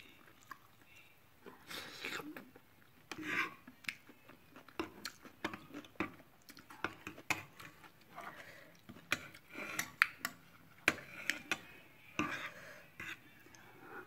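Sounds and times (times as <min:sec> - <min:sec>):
cutlery clinking and scraping pan: 0:08.9 - 0:13.2.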